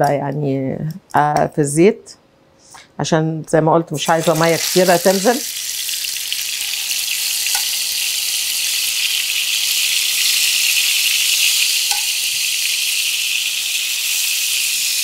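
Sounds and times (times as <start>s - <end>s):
food sizzling in hot oil: 4.0s - 15.0s.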